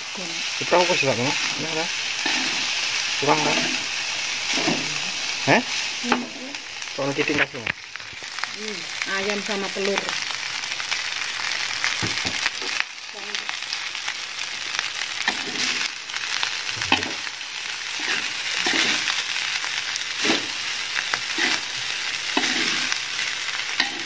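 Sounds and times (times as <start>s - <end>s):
rice sizzling in a wok: 0.0s - 24.0s
metal spatula scraping wok: 0.7s - 6.3s, 15.2s - 15.9s, 17.9s - 19.2s, 20.2s - 20.6s, 21.2s - 24.0s.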